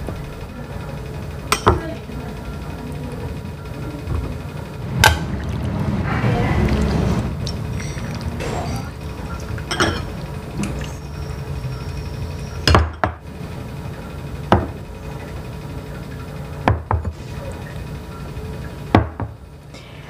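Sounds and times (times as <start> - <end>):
ladle clinking on ceramic bowls: 7.4 - 11.0
bowls knocked on countertop: 12.7 - 13.2, 14.5 - 14.8, 16.7 - 17.1, 18.9 - 19.4.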